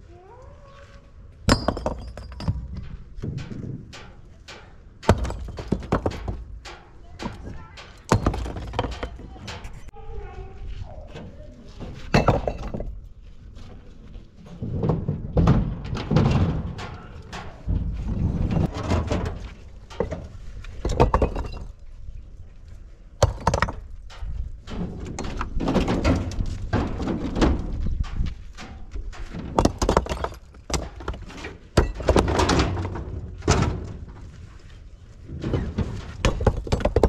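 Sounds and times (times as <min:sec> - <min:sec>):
rocks thudding and clacking: 0:01.4 - 0:09.7, 0:12.1 - 0:13.2, 0:14.6 - 0:22.1, 0:23.2 - 0:34.3, 0:35.2 - 0:37.0
rocks knocking on metal truck bed: 0:05.0 - 0:09.4, 0:20.8 - 0:21.8, 0:23.2 - 0:24.4, 0:29.1 - 0:34.0, 0:36.0 - 0:37.0.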